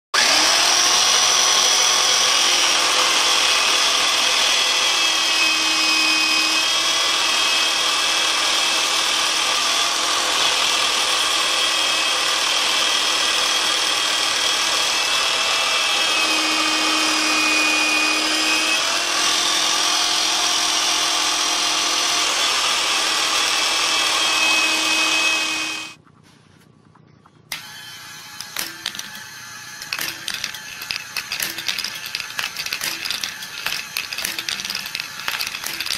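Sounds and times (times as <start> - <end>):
saw motor whining: 0.2 - 26.0, 27.5 - 35.9.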